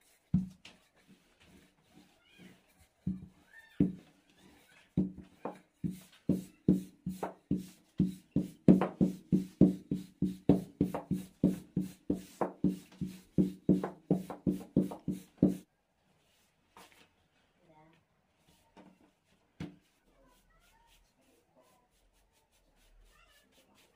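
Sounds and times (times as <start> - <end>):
rolling pin knocking on wooden board: 5.0 - 15.6.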